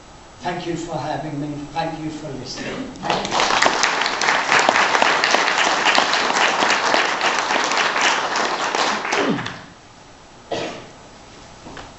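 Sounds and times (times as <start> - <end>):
audience applauding: 2.9 - 9.8.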